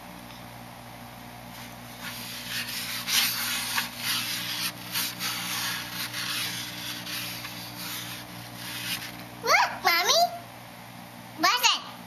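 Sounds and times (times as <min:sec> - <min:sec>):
paintbrush scrubbing foam tray: 0:01.6 - 0:09.2.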